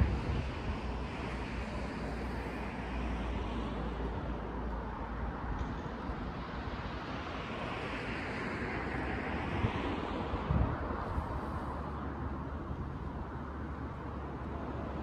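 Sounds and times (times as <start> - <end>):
wind hiss on microphone: 0.0 - 4.2, 6.4 - 13.3
distant traffic rumble: 0.0 - 15.0.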